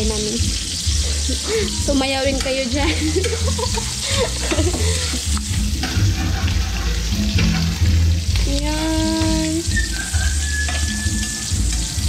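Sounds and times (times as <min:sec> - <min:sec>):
food sizzling in wok: 0:00.0 - 0:12.0
metal spatula scraping pan: 0:02.4 - 0:08.2, 0:09.6 - 0:12.0.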